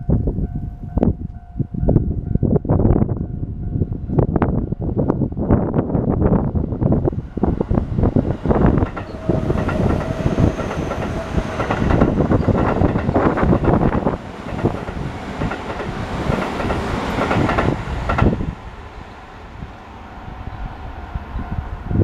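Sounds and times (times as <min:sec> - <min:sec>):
train wheels clattering over rails: 0:07.3 - 0:18.6.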